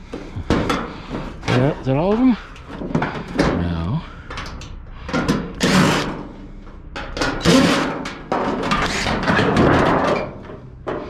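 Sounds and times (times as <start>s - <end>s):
metal scraping and rattling: 0.0s - 11.0s.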